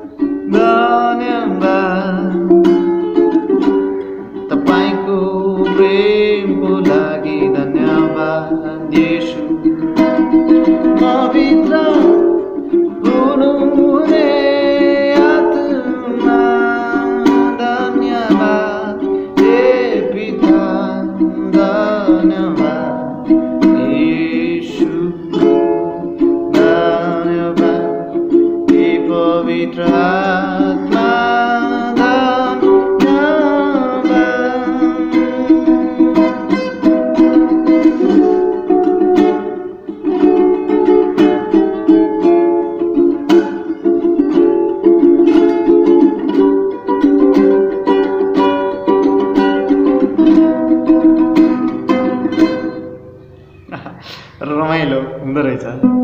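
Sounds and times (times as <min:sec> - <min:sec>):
ukulele strummed: 0:00.0 - 0:53.7, 0:54.6 - 0:56.0
man singing: 0:00.4 - 0:02.9, 0:04.4 - 0:37.3.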